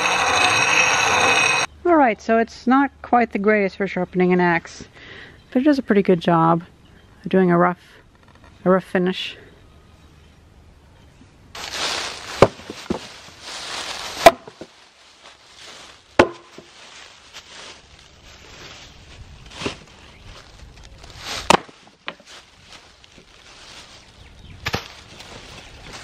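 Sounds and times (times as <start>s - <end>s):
dry leaves rustling: 11.5s - 26.0s
axe chopping wooden boards: 12.4s - 13.1s, 14.2s - 14.7s, 16.2s - 16.8s, 21.4s - 22.2s, 24.6s - 24.9s.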